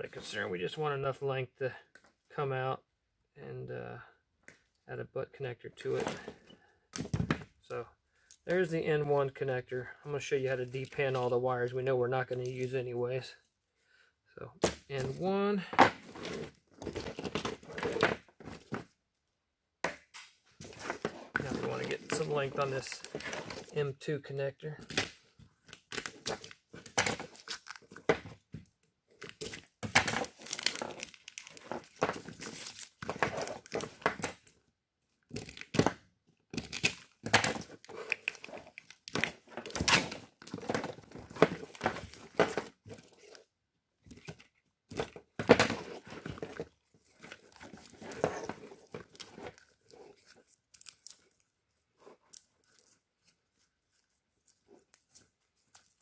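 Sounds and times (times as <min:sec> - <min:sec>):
wires crinkling and rustling: 0:20.2 - 0:24.1, 0:29.2 - 0:34.5, 0:44.1 - 0:56.0
tape being torn and peeled: 0:49.6 - 0:51.5.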